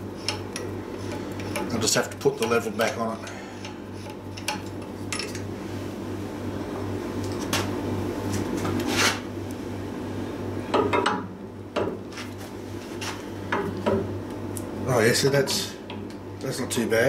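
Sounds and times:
steady low hum: 0.0s - 17.0s
metal scrape: 8.9s - 9.2s.

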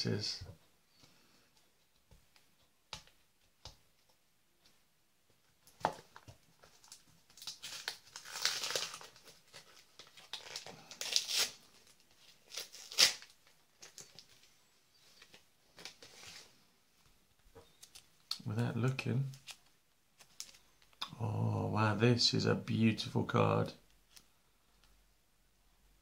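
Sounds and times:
packaging torn and crumpled: 6.8s - 14.4s.

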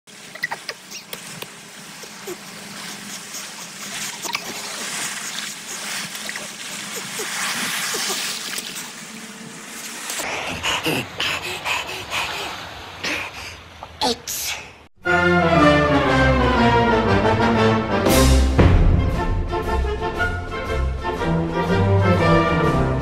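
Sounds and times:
splashes of wading: 0.1s - 14.8s
waves breaking on shore: 0.1s - 14.9s.

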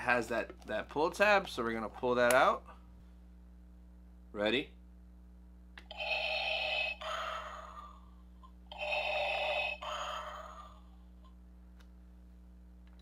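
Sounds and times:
toy electronic sound effect: 5.9s - 7.7s, 8.7s - 10.7s.

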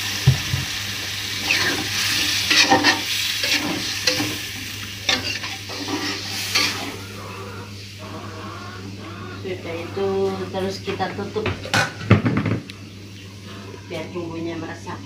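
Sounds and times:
sauce sizzling: 0.0s - 11.4s
metal spatula scraping wok: 1.4s - 4.4s, 5.0s - 7.0s.

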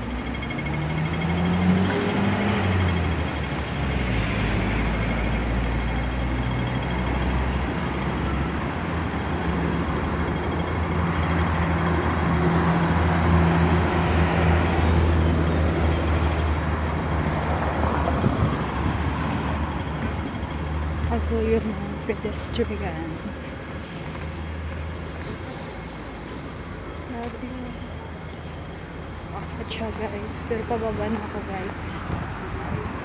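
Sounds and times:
heavy vehicle passing: 0.0s - 23.3s
traffic engines passing: 0.0s - 33.0s.

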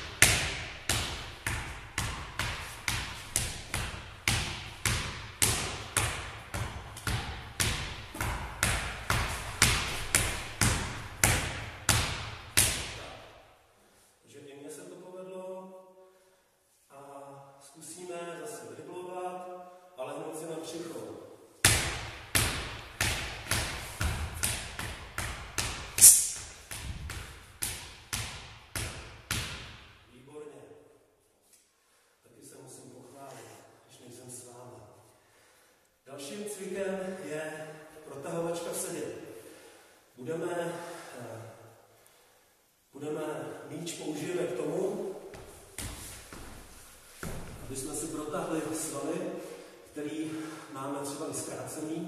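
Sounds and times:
ball bouncing on wooden floor: 0.0s - 12.9s, 21.7s - 25.9s, 26.5s - 29.9s, 45.3s - 47.7s.

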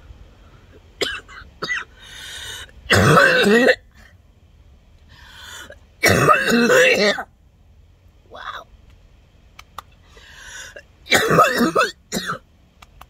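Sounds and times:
woman coughing hard: 1.0s - 1.9s, 2.9s - 3.8s, 6.0s - 7.2s, 11.1s - 12.4s
woman breathing: 1.9s - 2.8s, 5.0s - 5.9s, 10.0s - 10.9s.

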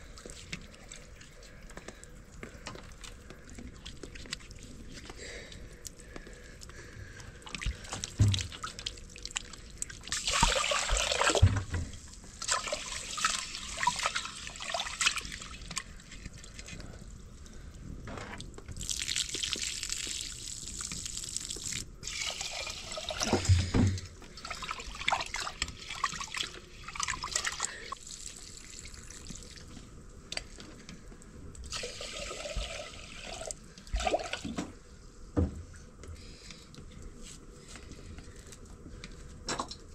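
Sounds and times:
water sloshing and swishing: 0.0s - 5.2s, 7.3s - 17.6s
water poured into pot: 8.2s - 11.4s, 12.4s - 15.8s, 18.8s - 23.5s, 31.7s - 34.4s.

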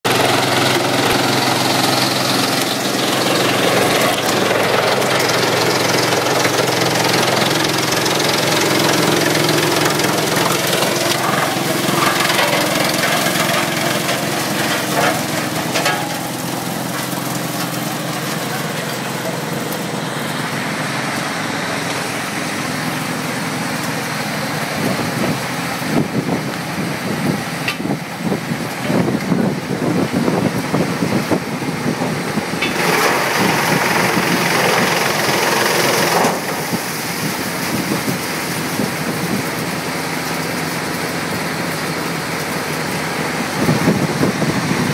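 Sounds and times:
wood chipper hum: 0.0s - 44.9s.

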